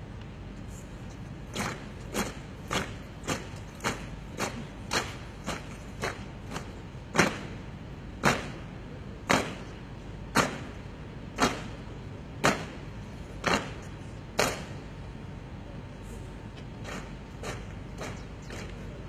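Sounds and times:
marching boots stamping on pavement: 1.5s - 7.6s.

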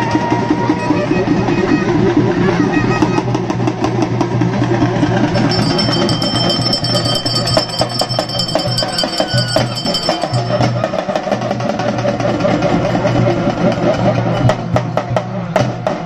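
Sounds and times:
barrel drums beaten with sticks: 3.3s - 16.0s
thin high steady tone: 5.3s - 11.3s.

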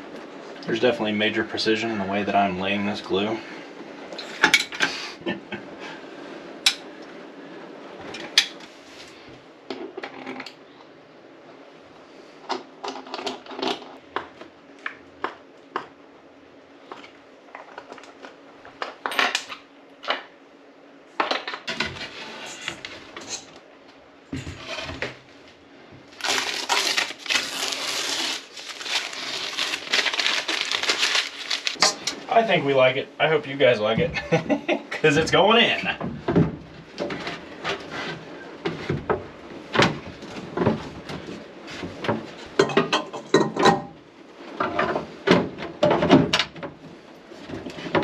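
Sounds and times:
tape peeled and crumpled: 26.1s - 31.8s.

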